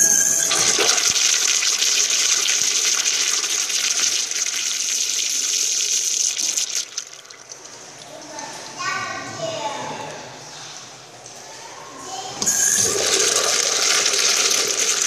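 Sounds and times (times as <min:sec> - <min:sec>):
urinal flushing: 0:00.0 - 0:08.7, 0:12.4 - 0:15.0.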